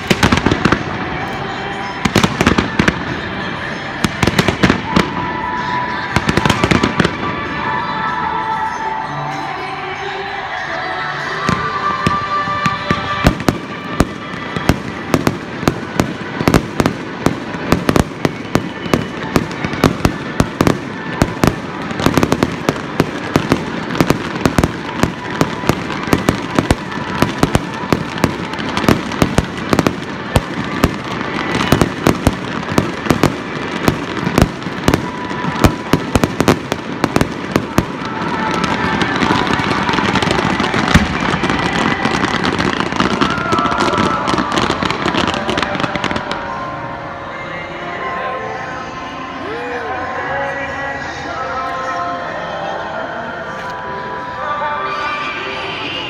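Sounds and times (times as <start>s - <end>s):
fireworks bangs and crackles: 0.0s - 8.2s, 11.4s - 46.8s
music playing: 0.0s - 56.0s.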